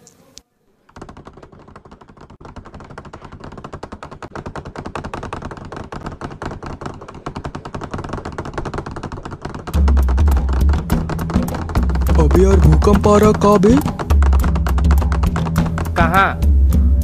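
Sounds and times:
bench rattling: 0:01.0 - 0:16.1.

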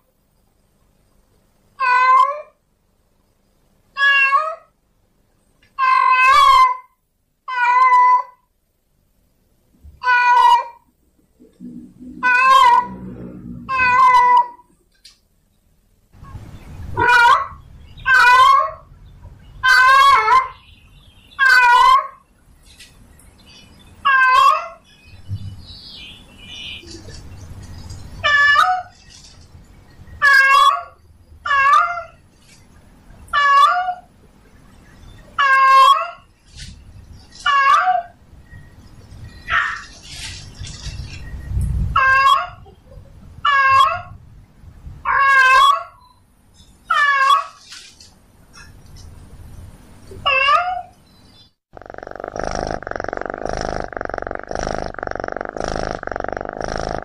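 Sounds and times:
cat yowling: 0:01.8 - 0:02.5, 0:04.0 - 0:04.7, 0:05.8 - 0:06.9, 0:07.5 - 0:08.4, 0:10.0 - 0:10.9, 0:12.2 - 0:13.0, 0:13.7 - 0:14.6, 0:17.0 - 0:18.9, 0:19.6 - 0:20.6, 0:21.4 - 0:22.2, 0:24.1 - 0:24.8, 0:30.2 - 0:32.2, 0:33.4 - 0:34.1, 0:37.5 - 0:38.2, 0:43.4 - 0:44.1, 0:45.1 - 0:45.9, 0:50.3 - 0:50.9
cat meowing: 0:04.0 - 0:04.7, 0:05.8 - 0:06.8, 0:07.5 - 0:08.4, 0:10.0 - 0:10.9, 0:12.2 - 0:13.0, 0:13.7 - 0:14.6, 0:24.1 - 0:24.8.

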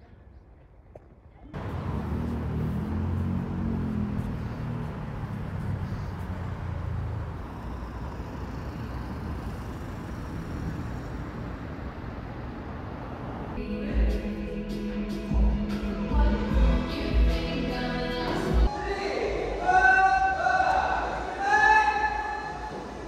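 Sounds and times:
road traffic noise: 0:01.5 - 0:23.0
low engine hum: 0:01.6 - 0:18.7.

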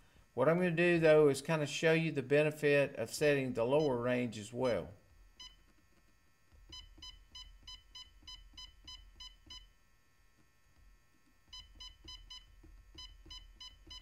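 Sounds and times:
short electronic beeps: 0:06.7 - 0:09.7, 0:11.5 - 0:14.0.

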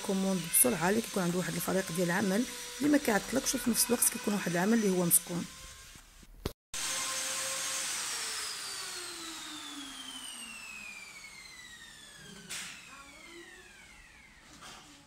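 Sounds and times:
electric motor whine spinning down: 0:06.8 - 0:14.6.

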